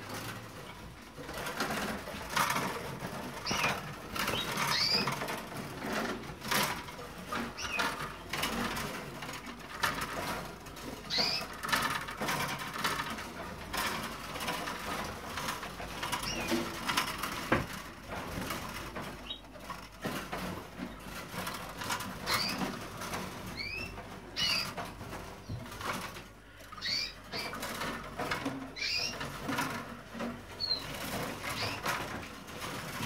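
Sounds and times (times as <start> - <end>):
birds tapping on cage bars: 0.0 - 33.0
canaries chirping: 0.0 - 33.0
wing flutter: 1.4 - 6.0.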